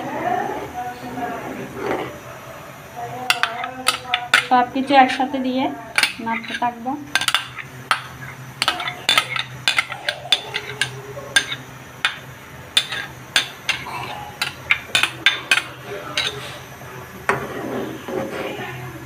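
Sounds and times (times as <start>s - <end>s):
utensils clinking against pan: 3.2s - 16.7s.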